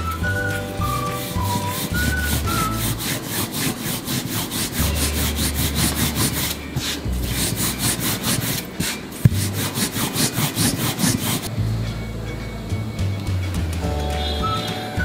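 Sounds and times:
rolling pin rasping on dough: 0:00.1 - 0:11.5.

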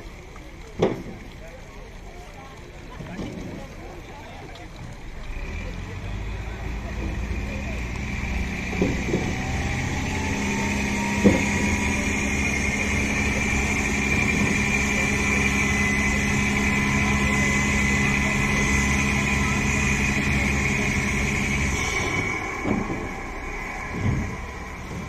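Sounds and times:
diesel boat engine running: 0:00.0 - 0:25.0
high engine whine: 0:05.0 - 0:25.0.

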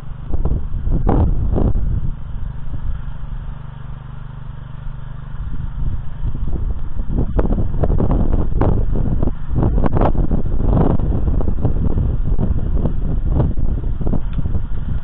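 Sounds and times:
small petrol engine running: 0:00.0 - 0:15.0.

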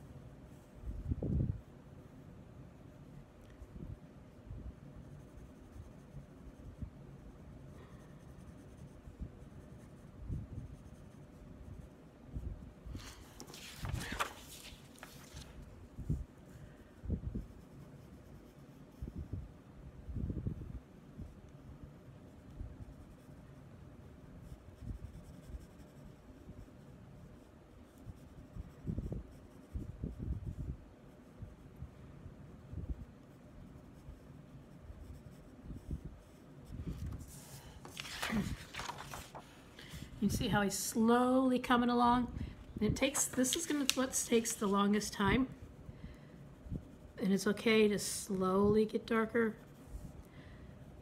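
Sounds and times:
pencil shading on paper: 0:05.0 - 0:12.0, 0:24.0 - 0:31.7, 0:33.0 - 0:36.6
paper rustling and sliding: 0:13.0 - 0:15.7, 0:36.9 - 0:40.0, 0:43.0 - 0:44.8.

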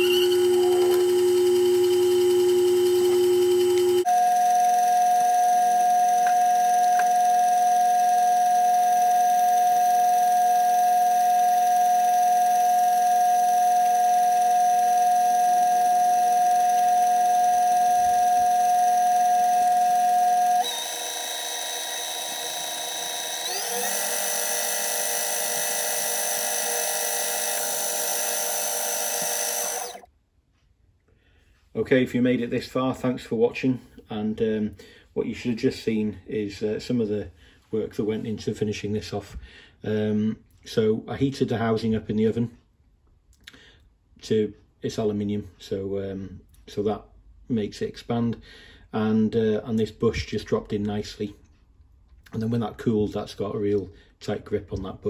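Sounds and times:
synth-like held tones: 0:00.0 - 0:04.3.

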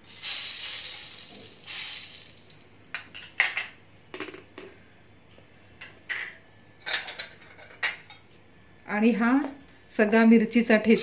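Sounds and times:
salt hissing in hot oil: 0:00.0 - 0:02.6.

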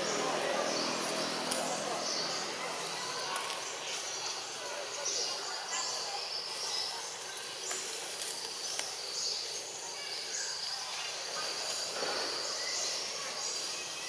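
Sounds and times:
insects chirping: 0:00.0 - 0:14.0.

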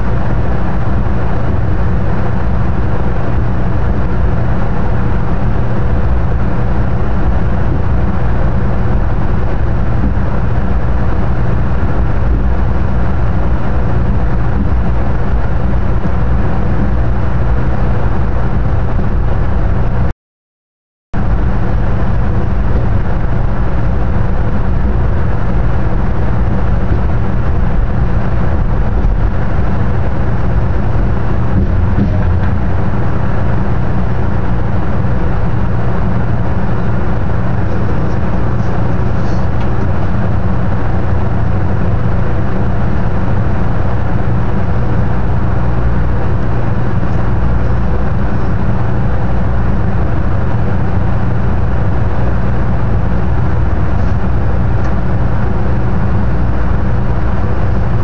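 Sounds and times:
train rumbling at speed: 0:00.0 - 0:20.1, 0:21.2 - 0:58.0.

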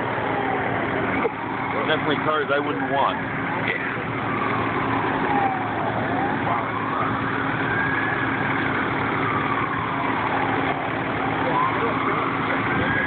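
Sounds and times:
emergency siren wailing: 0:00.0 - 0:13.0
engines idling: 0:00.0 - 0:13.0.

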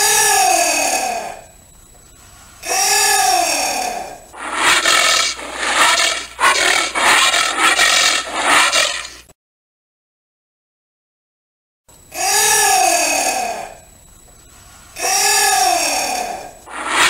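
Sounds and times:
anteater calling: 0:04.4 - 0:09.2.

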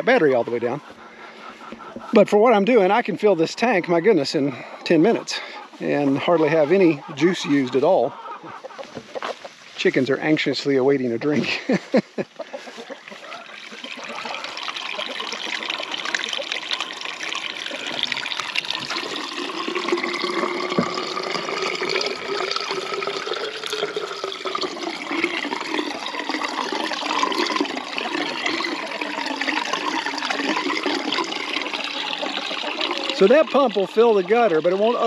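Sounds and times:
water pouring into gutter: 0:02.0 - 0:08.1, 0:13.0 - 0:35.0.

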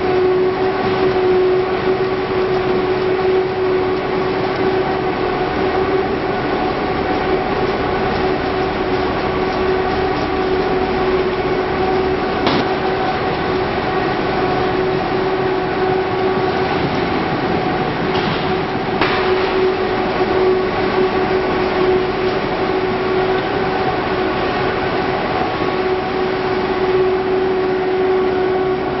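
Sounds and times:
conveyor rattle: 0:00.0 - 0:29.0
machinery motor hum: 0:00.0 - 0:29.0
sharp knocks: 0:12.4 - 0:12.8.

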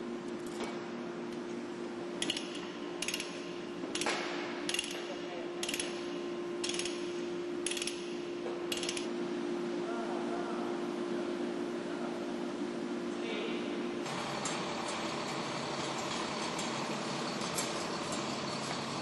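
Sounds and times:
steady machinery hum: 0:00.0 - 0:19.0
chain hoist ratchet clicking: 0:02.2 - 0:08.1, 0:08.7 - 0:09.1.

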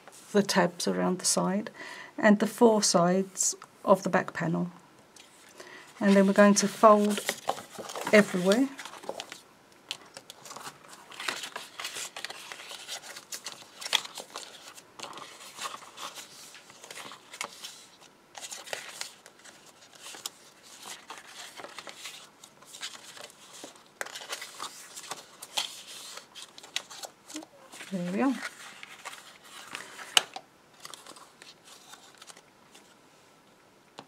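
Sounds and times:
card rustling and crackling: 0:05.2 - 0:33.0.

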